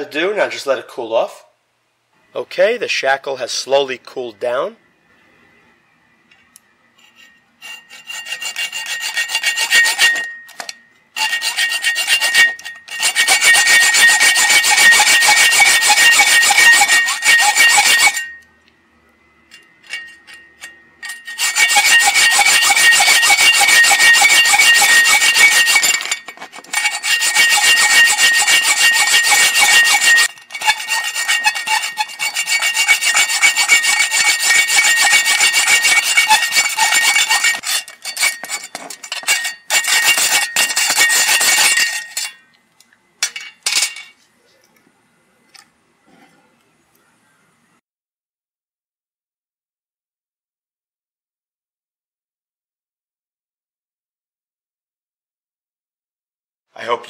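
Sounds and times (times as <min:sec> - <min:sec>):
hacksaw sawing through steel: 0:07.0 - 0:18.4, 0:19.6 - 0:42.4.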